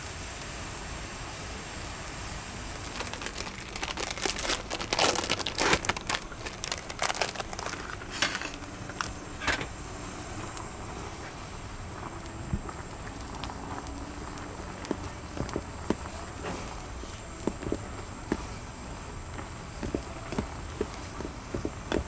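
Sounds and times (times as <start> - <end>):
steady background hiss: 0.0 - 22.0
plastic packaging crinkling: 2.7 - 9.2.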